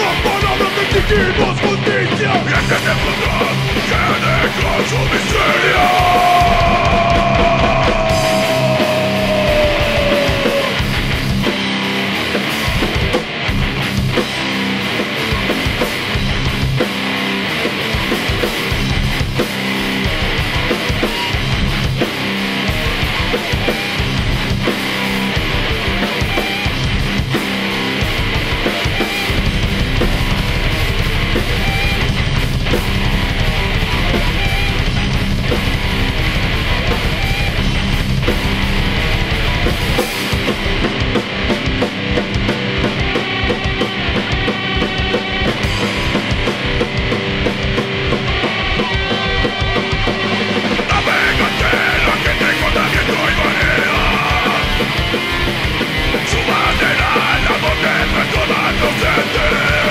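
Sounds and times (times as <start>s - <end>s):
heavy metal band playing: 0.0s - 59.9s
guitar note sliding down: 5.4s - 12.2s, 28.1s - 59.9s.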